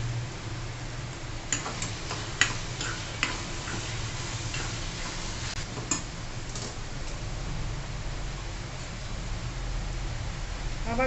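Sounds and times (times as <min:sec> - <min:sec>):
frying hiss: 0:01.2 - 0:07.5.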